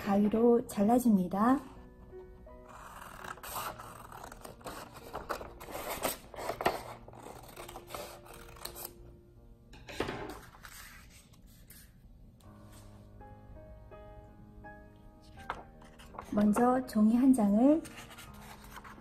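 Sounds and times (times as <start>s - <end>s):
scissors cutting paper: 2.7s - 9.0s.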